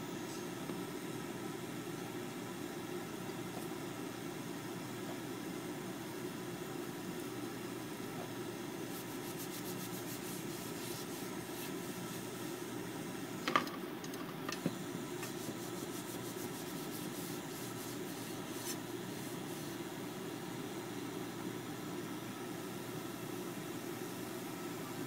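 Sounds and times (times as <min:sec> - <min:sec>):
steady low hum: 0:00.0 - 0:25.0
paper rubbing inside a pan: 0:08.9 - 0:12.4, 0:15.2 - 0:19.8.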